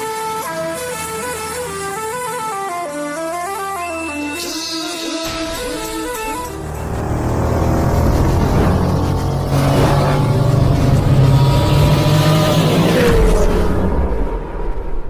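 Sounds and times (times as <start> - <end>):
racing engine revving past: 5.3 - 14.3.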